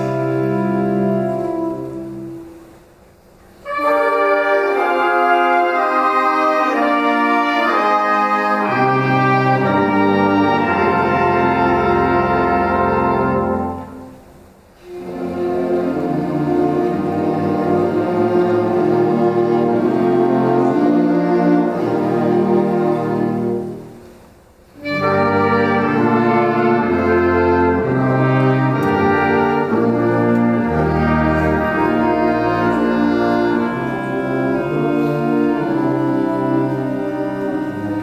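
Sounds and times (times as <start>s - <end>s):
tuba: 0.0s - 38.0s
concert band playing chords: 24.8s - 38.0s.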